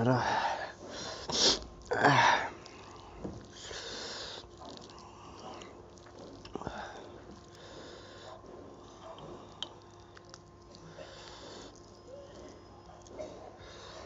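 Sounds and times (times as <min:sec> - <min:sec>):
person breathing: 0:00.2 - 0:05.6, 0:06.6 - 0:08.4, 0:10.8 - 0:11.8
person sniffling: 0:00.9 - 0:02.5.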